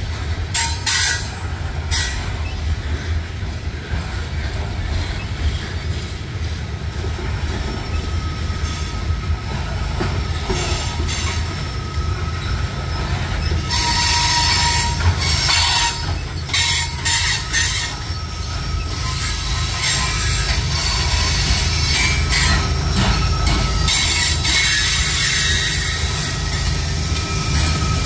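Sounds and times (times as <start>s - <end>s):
train wheels rumbling on rails: 0.0s - 28.0s
wheel squeal: 7.2s - 28.0s.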